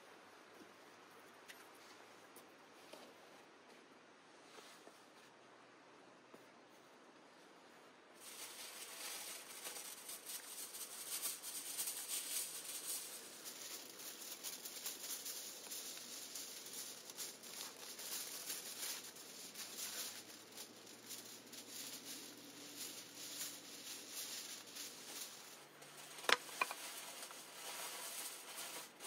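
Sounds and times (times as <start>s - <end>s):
wrapping film crinkling: 8.2s - 29.0s.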